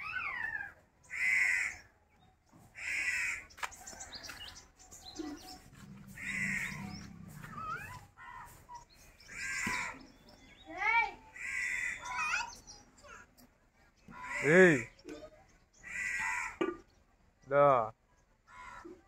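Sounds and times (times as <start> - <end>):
small birds chirping: 0.0 - 19.0
crows cawing: 0.4 - 1.9, 2.8 - 4.2, 5.8 - 8.6, 9.2 - 10.1, 11.3 - 12.4, 14.1 - 15.0, 15.8 - 16.8, 18.5 - 19.0.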